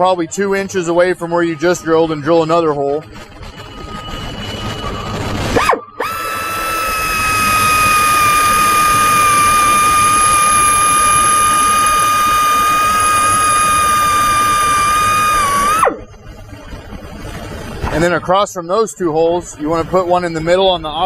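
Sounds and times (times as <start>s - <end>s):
drill whining: 1.2s - 16.9s.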